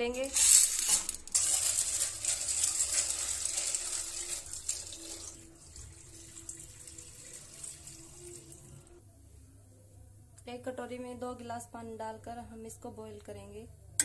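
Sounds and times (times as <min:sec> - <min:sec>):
water pouring into sink drain: 0:01.3 - 0:09.0.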